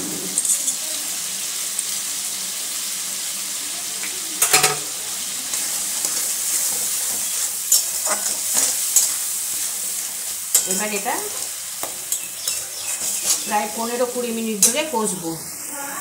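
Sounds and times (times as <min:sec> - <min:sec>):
masala sizzling in oil: 0:00.0 - 0:16.0
spatula scraping and stirring: 0:05.5 - 0:14.9.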